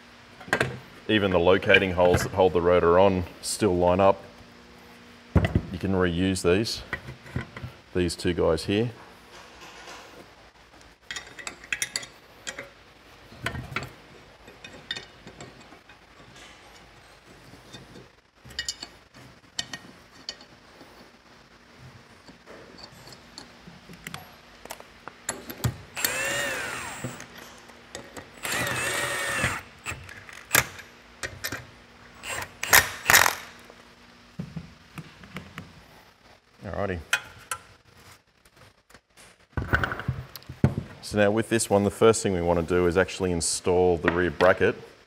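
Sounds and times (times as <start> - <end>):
cordless drill whirring: 26.0 - 27.3, 28.4 - 30.0.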